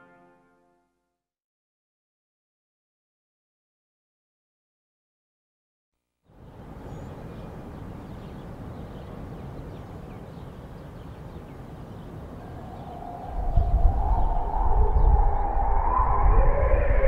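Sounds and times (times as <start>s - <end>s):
low city rumble: 6.3s - 17.0s.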